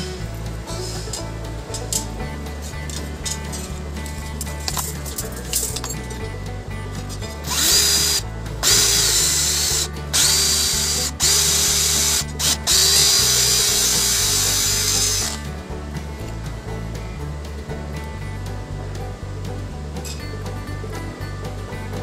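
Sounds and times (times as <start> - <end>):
background music: 0.0 - 22.0
cordless drill whining: 7.4 - 15.4.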